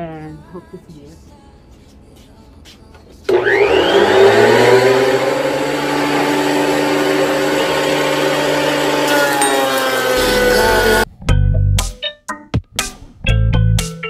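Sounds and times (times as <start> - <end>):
thickness planer motor whine: 3.3 - 11.1.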